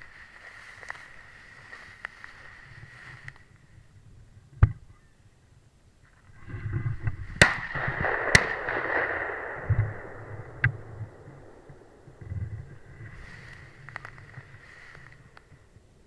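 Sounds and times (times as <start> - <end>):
shotgun shots with echo: 7.4 - 12.1
small crack: 10.5 - 15.6.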